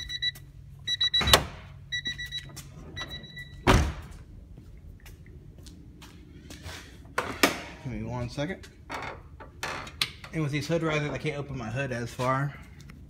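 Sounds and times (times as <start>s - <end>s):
car warning chime beeping: 0.0s - 3.7s.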